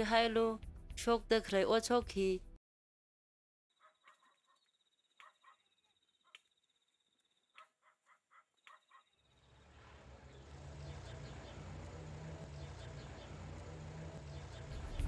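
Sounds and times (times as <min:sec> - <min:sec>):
bird chirping: 0:03.8 - 0:09.7, 0:10.3 - 0:15.0
low rumbling noise: 0:09.5 - 0:15.0.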